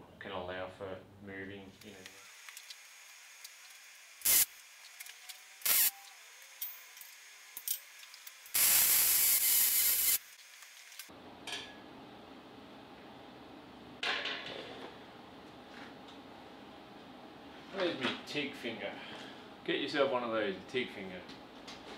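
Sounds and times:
welding arc crackling hiss: 1.8 - 11.1.

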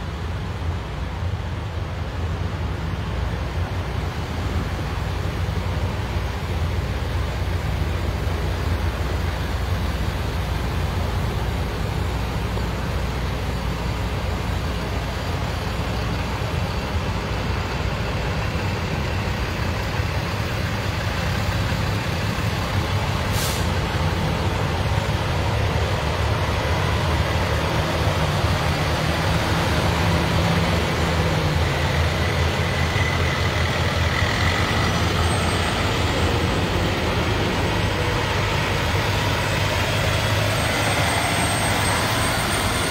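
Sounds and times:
heavy truck engines: 0.0 - 42.9
brief high hiss: 23.2 - 23.9.

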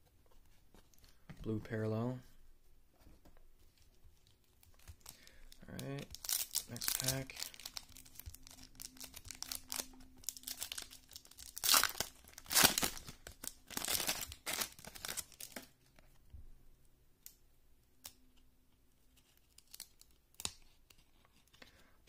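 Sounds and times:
foil wrapper crinkling and tearing: 4.7 - 15.7.

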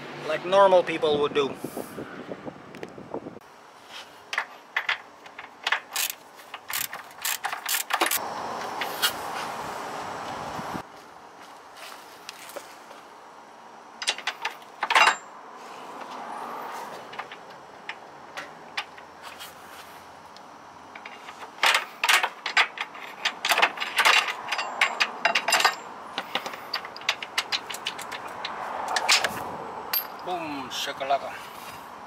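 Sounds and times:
wrench metallic clicks: 4.4 - 8.2.

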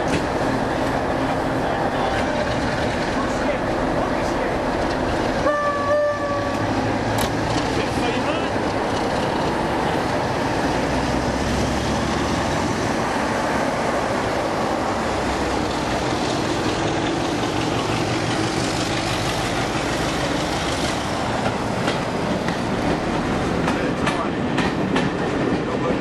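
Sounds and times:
wheels clicking on rail joints: 0.0 - 5.5, 6.4 - 11.0, 15.4 - 26.0
diesel locomotive engines droning: 0.0 - 26.0.

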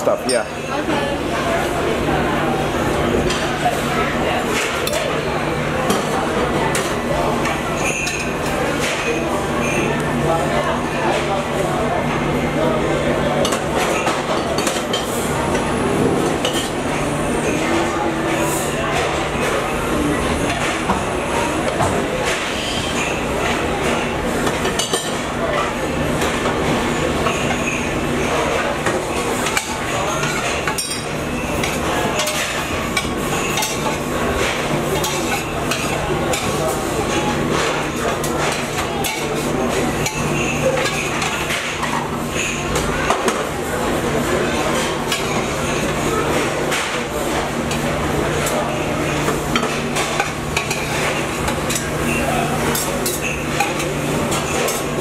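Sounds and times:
dishes and utensils clinking: 0.0 - 55.0.

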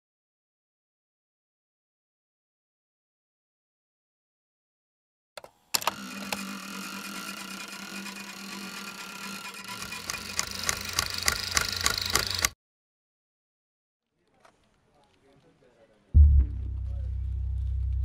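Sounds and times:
mechanical whirring drone: 5.8 - 12.6
run of clicks speeding up: 9.7 - 12.6
click: 10.1 - 12.6
low rumble: 16.2 - 18.0.

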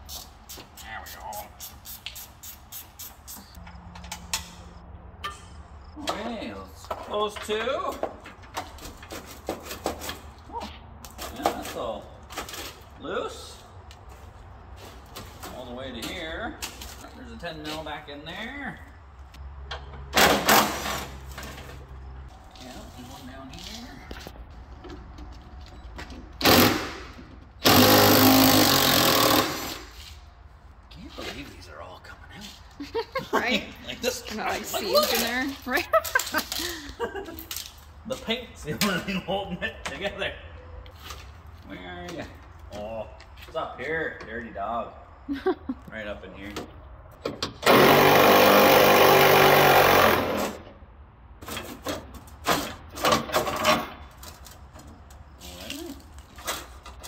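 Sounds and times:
knocks and rustles: 3.6 - 10.4.

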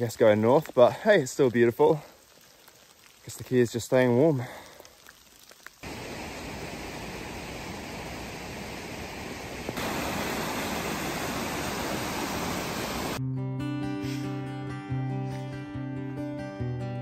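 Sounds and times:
whitewater creek rushing over rocks: 5.8 - 13.2
acoustic guitar music: 13.2 - 17.0.

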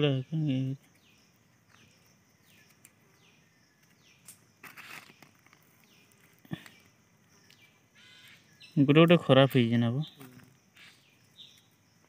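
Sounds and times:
stick scraping soil: 4.2 - 6.8.

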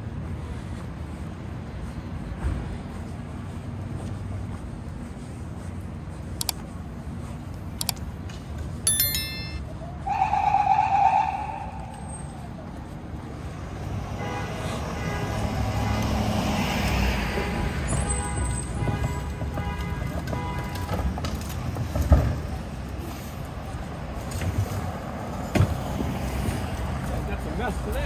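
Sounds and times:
sharp clicks: 6.4 - 6.6, 7.8 - 8.1
loud held tone: 8.9 - 9.6
vehicle passing: 13.2 - 17.4.

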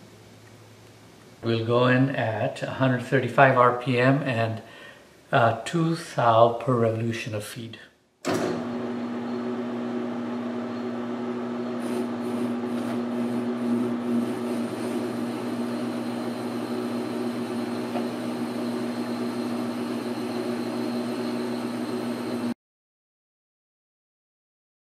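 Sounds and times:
metal lathe humming: 8.6 - 22.6.

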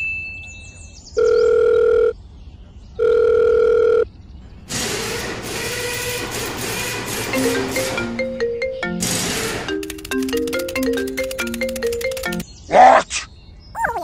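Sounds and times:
marimba-like mallet melody: 7.3 - 12.4.

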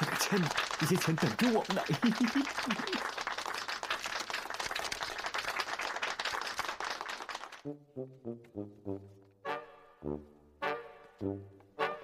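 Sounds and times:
crowd applauding: 0.0 - 7.6.

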